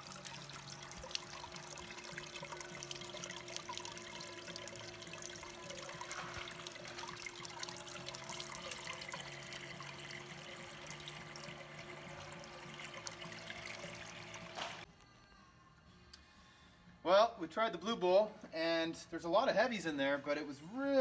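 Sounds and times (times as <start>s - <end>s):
water swirling and splashing in bowl: 0.0s - 14.9s.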